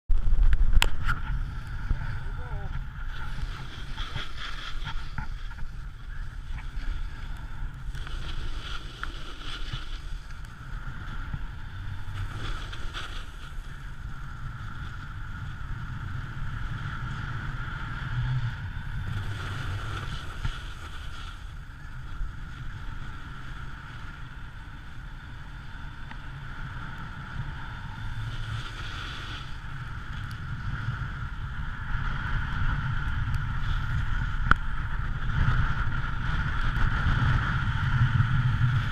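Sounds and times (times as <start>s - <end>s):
wind rumbling on microphone: 0.1s - 38.9s
snowboard hissing over snow: 1.4s - 21.7s, 27.4s - 31.3s.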